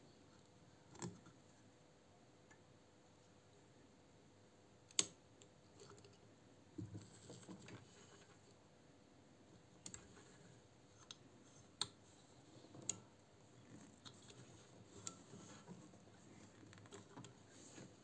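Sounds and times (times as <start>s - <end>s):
small sharp clicks: 4.9s - 6.2s
soft rustles of thread: 6.8s - 8.6s, 10.0s - 18.0s.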